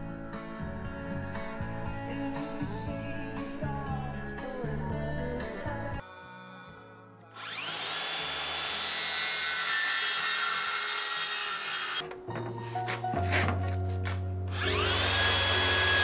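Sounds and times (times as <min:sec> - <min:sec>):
background music: 0:00.0 - 0:07.7, 0:11.0 - 0:16.0
circular saw cutting plywood: 0:07.4 - 0:12.0, 0:14.5 - 0:16.0.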